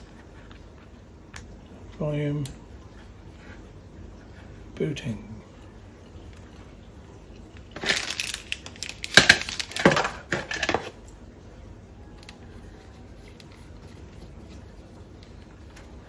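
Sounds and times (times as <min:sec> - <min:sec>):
packaging rustling and crinkling: 0:07.6 - 0:11.0.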